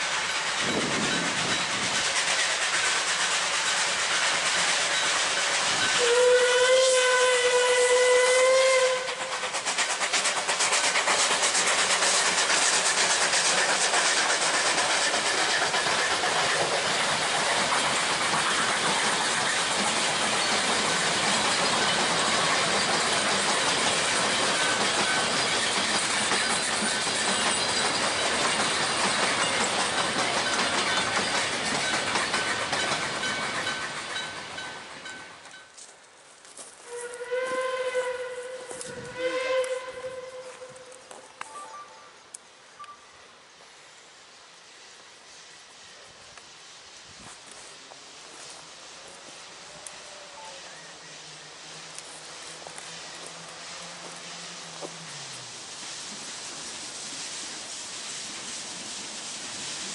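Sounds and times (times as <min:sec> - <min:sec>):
train wheels on rails: 0:00.0 - 0:59.9
steam whistle: 0:05.9 - 0:09.3, 0:36.8 - 0:42.2.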